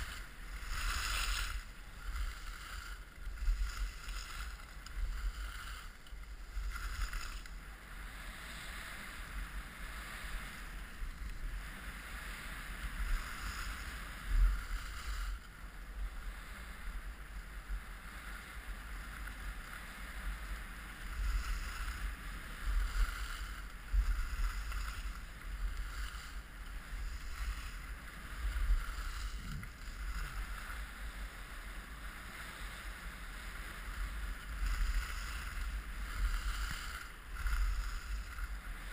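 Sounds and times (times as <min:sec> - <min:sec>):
wind buffeting microphone: 0:00.0 - 0:07.6, 0:21.2 - 0:31.1
skis sliding over snow: 0:00.0 - 0:38.9.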